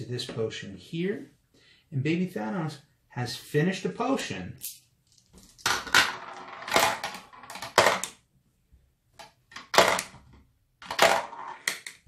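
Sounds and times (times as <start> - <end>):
marbles clicking and clattering: 4.6 - 8.2.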